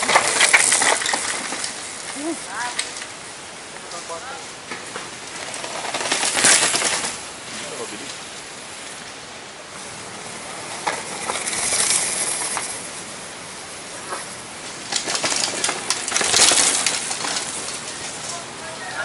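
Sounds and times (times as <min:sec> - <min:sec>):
bike rattles and knocks: 0:00.0 - 0:03.1, 0:04.6 - 0:08.2, 0:10.3 - 0:13.3, 0:13.9 - 0:18.7
bike tyres crunching on gravel: 0:00.0 - 0:19.0.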